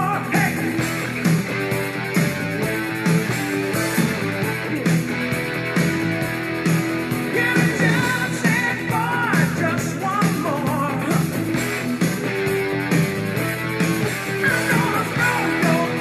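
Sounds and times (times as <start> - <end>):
rock music with guitar: 0.0 - 16.0.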